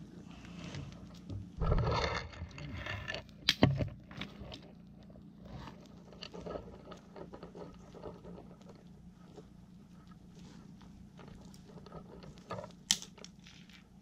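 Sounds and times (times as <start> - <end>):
twigs snapping: 12.7 - 13.7.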